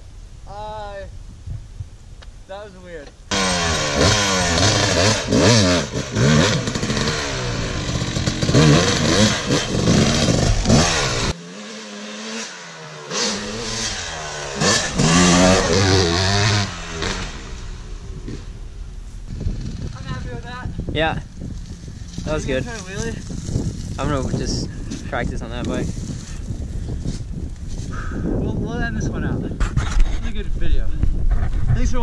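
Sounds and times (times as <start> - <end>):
dirt bike engines revving: 3.3 - 26.8.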